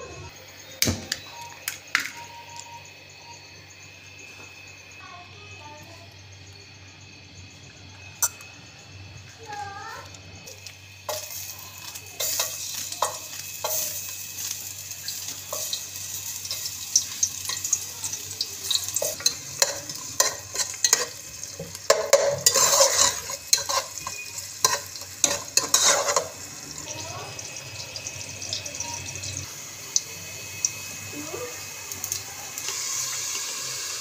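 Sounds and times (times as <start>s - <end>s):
onions sizzling in hot oil: 9.4s - 34.0s
spoon scraping a metal pot: 19.0s - 26.5s.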